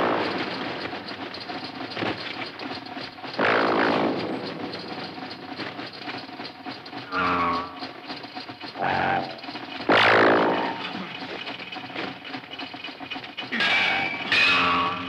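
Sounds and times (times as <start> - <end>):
steady crackling noise: 0.0 - 15.0
ray gun blast: 3.3 - 5.8, 8.8 - 11.2.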